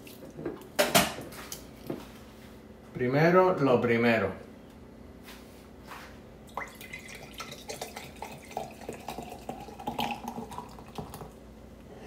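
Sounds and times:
drink fizzing and foaming: 0:06.5 - 0:11.4
drink pouring into a glass: 0:06.5 - 0:11.4.

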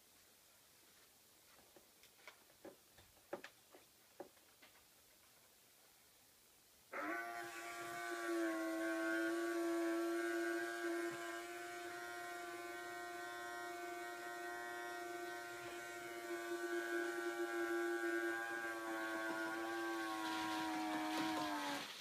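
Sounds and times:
small electric motor whining: 0:06.9 - 0:22.0.

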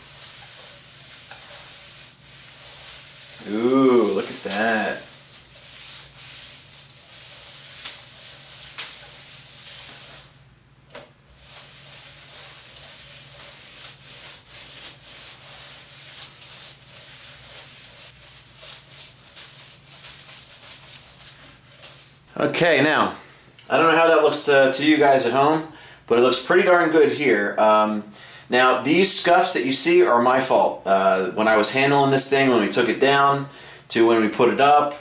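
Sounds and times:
wet rag scrubbing metal: 0:00.0 - 0:10.4, 0:11.3 - 0:22.3.

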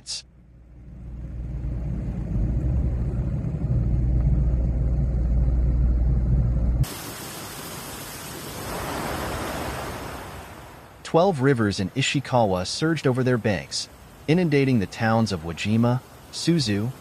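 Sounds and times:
fast-flowing river rumble: 0:06.8 - 0:17.0
hissing rush of floodwater: 0:06.8 - 0:17.0.

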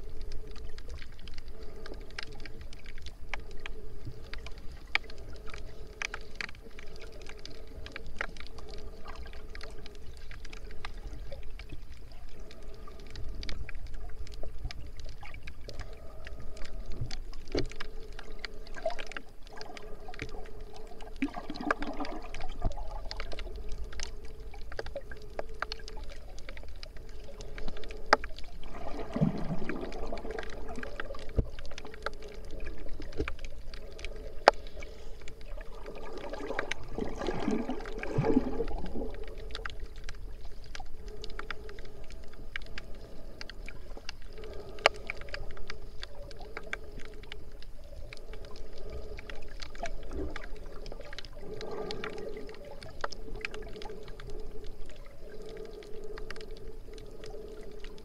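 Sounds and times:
muffled underwater churning: 0:00.0 - 0:58.0
water gurgling: 0:00.0 - 0:58.0.

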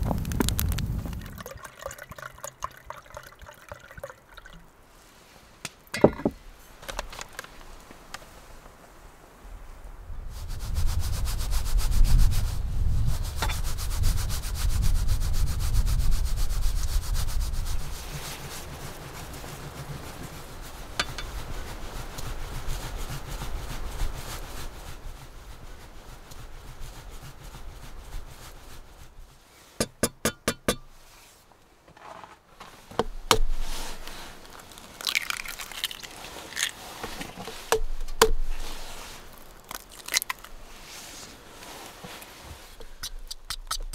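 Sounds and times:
eggs cracking on a bowl rim: 0:34.5 - 0:36.8, 0:39.3 - 0:40.6.

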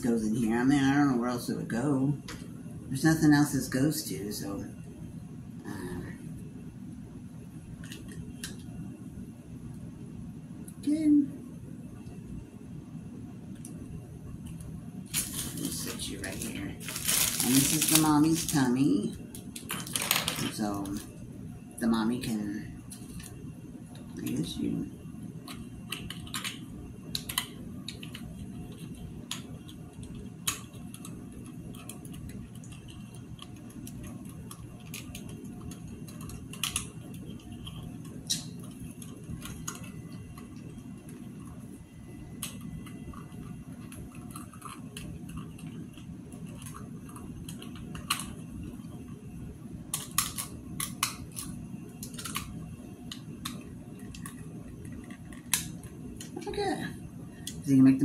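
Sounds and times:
low room hum: 0:00.0 - 0:58.0.

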